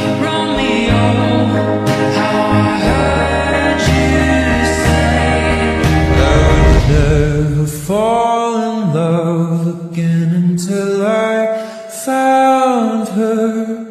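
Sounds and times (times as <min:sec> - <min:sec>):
bass: 0:00.0 - 0:08.2.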